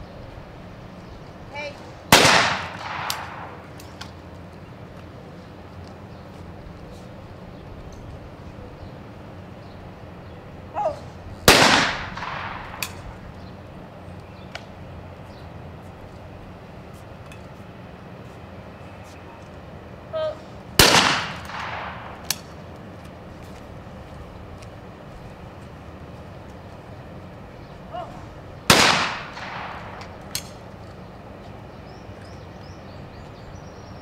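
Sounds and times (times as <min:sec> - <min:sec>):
person calling out: 0:01.5 - 0:01.9, 0:10.7 - 0:11.1, 0:20.1 - 0:20.5, 0:27.9 - 0:28.3
shotgun shots with echo: 0:02.1 - 0:03.6, 0:11.5 - 0:13.0, 0:20.8 - 0:22.3, 0:28.7 - 0:30.1.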